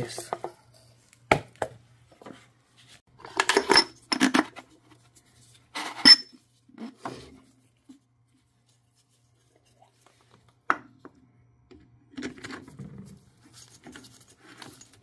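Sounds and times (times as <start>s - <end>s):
metal parts knocking and clinking: 3.2s - 4.4s.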